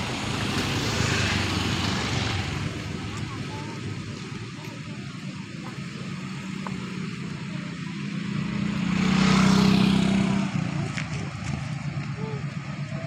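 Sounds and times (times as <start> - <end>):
motorcycle passing by: 0.0 - 13.0.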